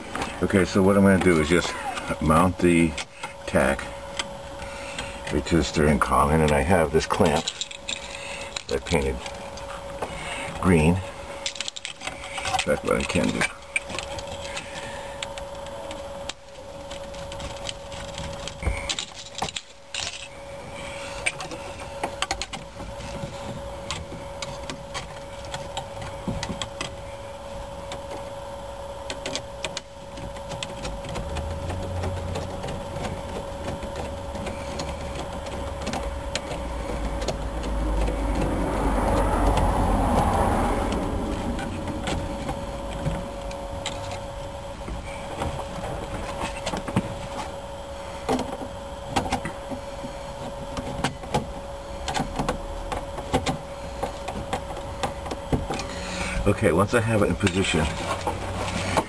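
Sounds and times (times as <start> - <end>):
faint steady hum: 0.0 - 59.0
passing vehicle rumble: 38.2 - 41.9.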